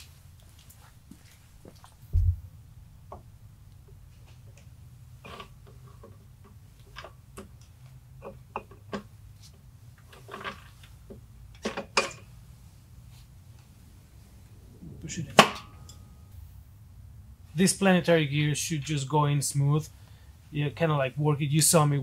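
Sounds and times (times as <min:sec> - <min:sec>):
low steady hum: 0:00.0 - 0:08.8, 0:10.8 - 0:21.8
dull bump: 0:02.1 - 0:02.5.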